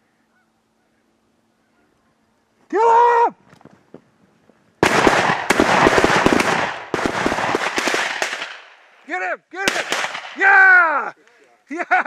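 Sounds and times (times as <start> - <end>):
shotgun blasts: 4.8 - 8.8, 9.7 - 10.4
people shouting: 9.6 - 11.2.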